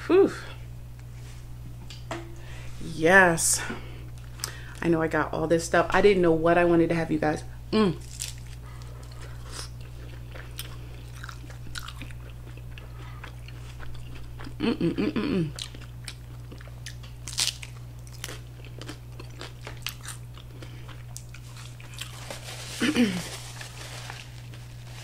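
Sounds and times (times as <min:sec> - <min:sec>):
short hummed voice: 0:00.0 - 0:00.7, 0:07.7 - 0:08.0, 0:14.6 - 0:15.6
steady low hum: 0:00.0 - 0:25.0
crunching taco shell: 0:08.0 - 0:14.5, 0:15.6 - 0:25.0.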